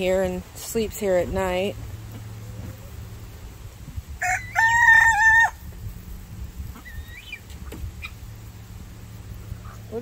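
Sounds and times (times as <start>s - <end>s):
rooster crowing: 4.2s - 5.6s.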